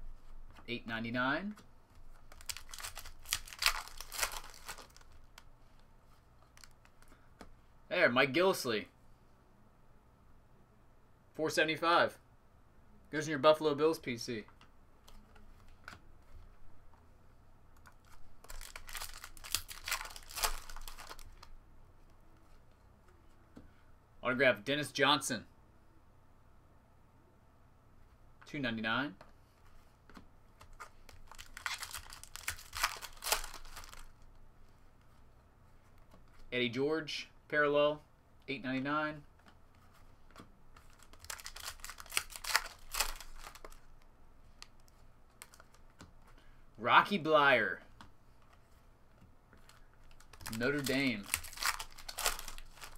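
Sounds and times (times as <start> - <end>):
foil wrapper tearing and crinkling: 2.3 - 5.3, 18.1 - 21.5, 31.1 - 34.1, 40.8 - 43.8, 50.0 - 52.9.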